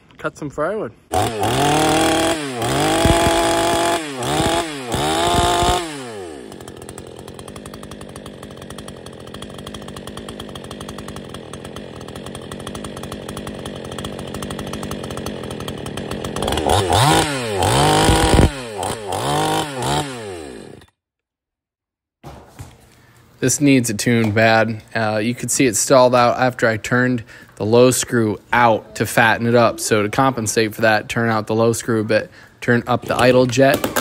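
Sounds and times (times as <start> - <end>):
man speaking: 0.1 - 1.0, 23.4 - 33.8
chainsaw revving and idling: 1.1 - 21.0, 33.1 - 34.0.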